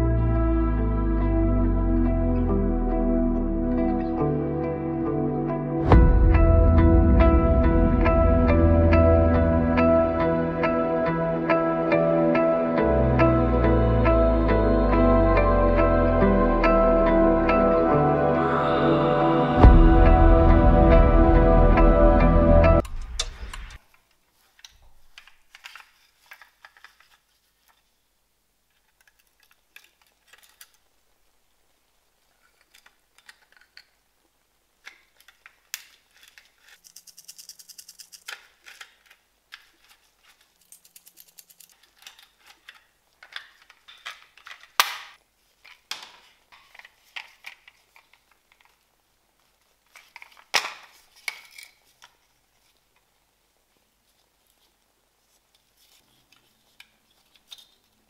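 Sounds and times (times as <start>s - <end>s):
plastic and metal parts clicking: 22.8s - 27.8s, 28.7s - 30.9s, 32.4s - 34.0s, 34.8s - 48.8s, 49.9s - 52.3s, 56.3s - 58.0s.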